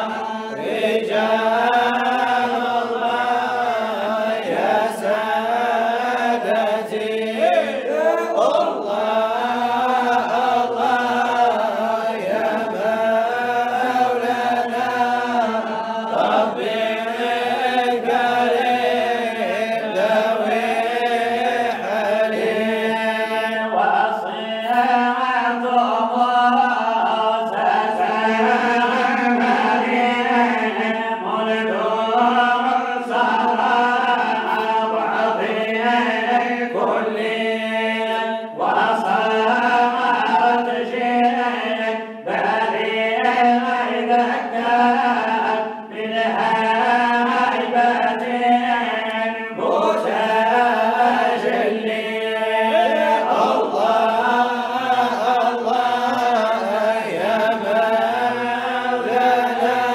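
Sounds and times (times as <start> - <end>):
men chanting: 0.0 - 59.9.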